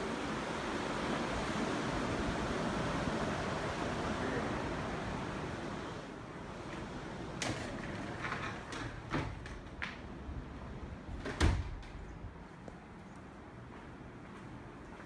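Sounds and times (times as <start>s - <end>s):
faint surf: 0.0s - 11.1s
door thump: 11.2s - 12.0s.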